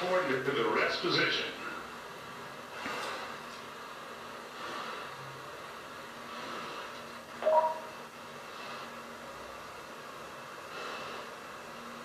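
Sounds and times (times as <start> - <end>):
radio hiss: 0.0 - 12.0
breathing into microphone: 4.5 - 5.2, 6.2 - 7.0, 10.6 - 11.5
two-tone beep: 7.4 - 7.9.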